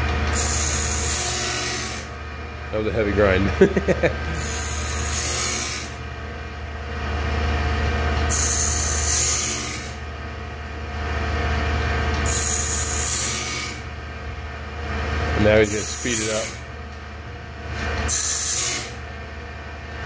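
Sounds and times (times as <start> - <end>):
electric motor hum: 0.0 - 20.0
grinding wheel hissing on blade: 0.3 - 2.2, 2.8 - 6.1, 8.3 - 10.0, 12.2 - 13.9, 15.4 - 16.7, 18.0 - 19.0.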